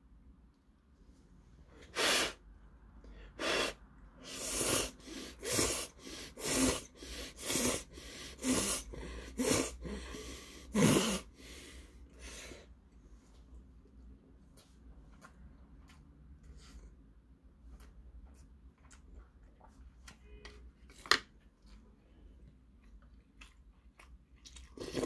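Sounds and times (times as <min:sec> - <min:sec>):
man slurping noodles: 0:03.4 - 0:11.3, 0:24.8 - 0:25.0.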